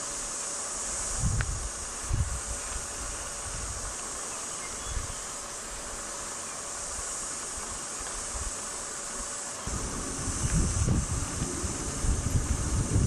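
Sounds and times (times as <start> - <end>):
high-pitched insect chorus: 0.0 - 13.0
wind rumbling on microphone: 1.1 - 3.9, 9.6 - 13.0.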